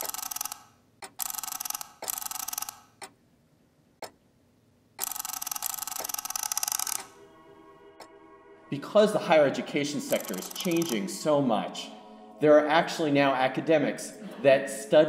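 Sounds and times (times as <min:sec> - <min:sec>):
clock ticking: 0:00.0 - 0:03.2, 0:04.0 - 0:04.2, 0:05.0 - 0:07.2, 0:10.1 - 0:11.0.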